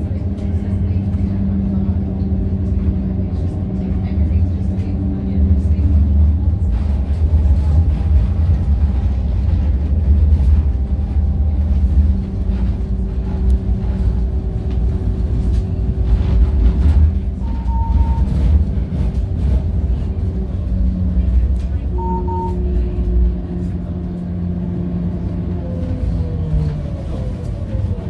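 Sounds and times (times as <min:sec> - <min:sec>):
tram wheels rumbling on rail: 0:00.0 - 0:28.0
short beep: 0:17.4 - 0:18.3, 0:21.9 - 0:22.8.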